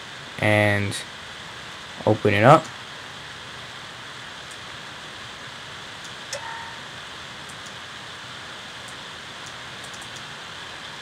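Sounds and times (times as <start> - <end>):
short tone: 6.4 - 6.9
faint clicks: 8.8 - 10.3.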